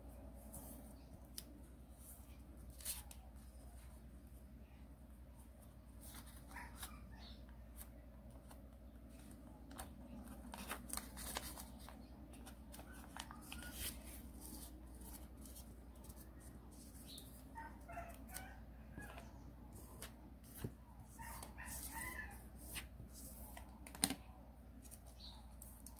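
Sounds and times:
paper rustling and crinkling: 2.3 - 3.9, 5.9 - 7.0, 7.7 - 17.5.

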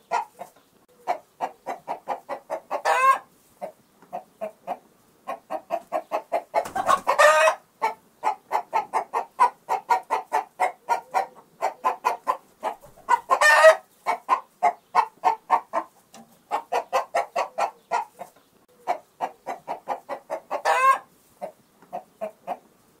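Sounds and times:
chicken squawking: 0.0 - 3.3, 4.2 - 15.9, 16.5 - 22.6
chicken clucking: 0.0 - 22.8.

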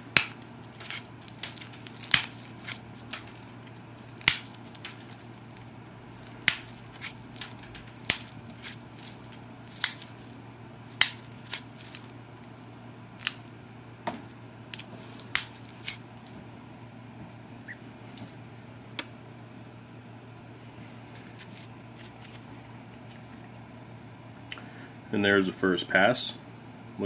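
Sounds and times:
stone flakes snapping off: 0.0 - 12.2, 13.1 - 13.6, 14.7 - 16.2.

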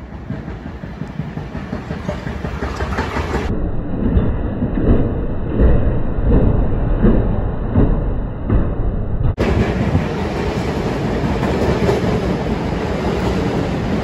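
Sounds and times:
wheels clacking over rail joints: 0.0 - 3.5, 9.4 - 14.0
subway train wheels rumbling: 0.0 - 14.0.

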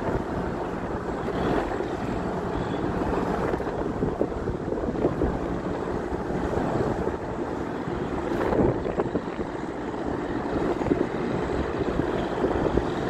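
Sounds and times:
tugboat engine drone: 0.0 - 13.0
wind rumbling on microphone: 0.0 - 13.0.

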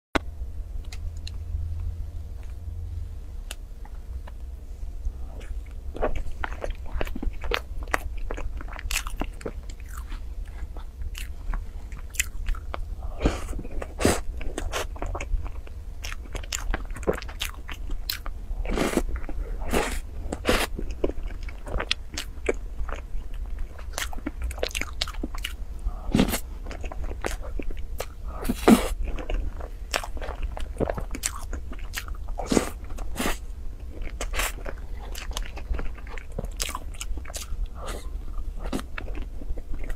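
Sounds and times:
chewing with crisp crunches: 3.5 - 39.9.

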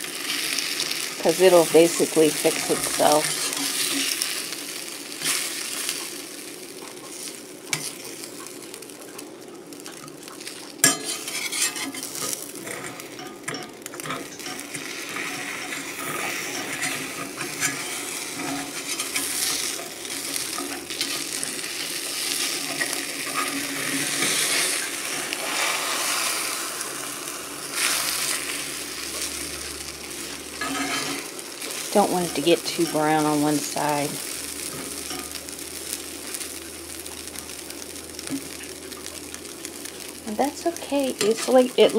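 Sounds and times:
eggs sizzling in a skillet: 0.0 - 41.9
spatula scraping a pan: 0.4 - 4.5, 10.8 - 29.5, 30.1 - 33.4.

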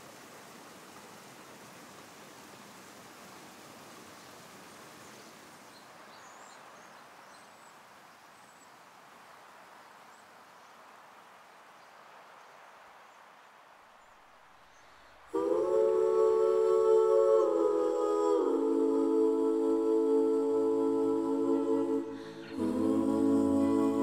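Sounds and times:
creek rushing: 0.0 - 24.0
music with hummed notes: 15.7 - 24.0.

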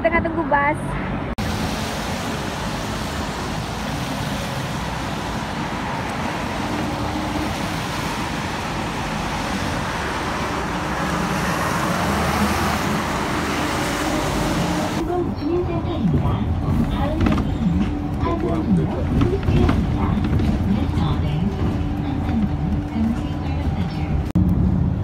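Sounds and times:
road traffic with engine hum: 0.0 - 25.0.

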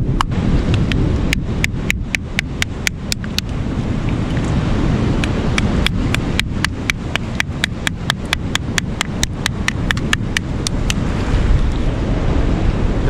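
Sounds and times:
surf rumbling: 0.0 - 13.0
wind: 0.0 - 13.0
metal mallet tapping a shell: 5.6 - 11.0.

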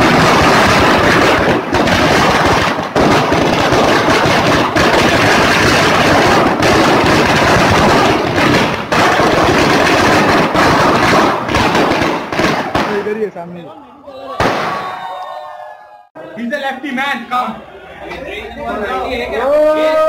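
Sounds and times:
firecrackers rattling bangs: 0.0 - 13.6.

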